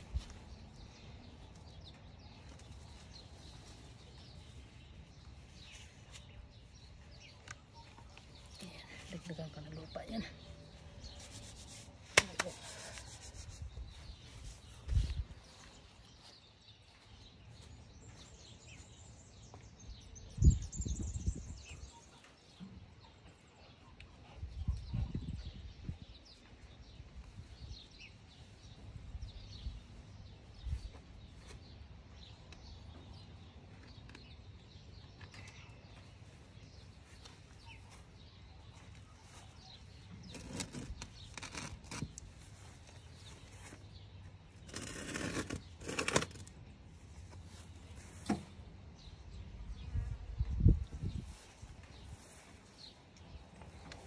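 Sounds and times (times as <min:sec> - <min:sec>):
soil scraping and rustling: 0:10.9 - 0:15.8, 0:40.0 - 0:46.6.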